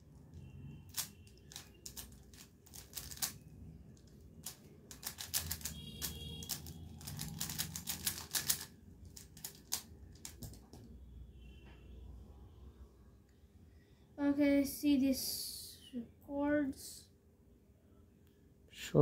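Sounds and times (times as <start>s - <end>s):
puzzle cube plastic clicks: 0.9s - 10.9s.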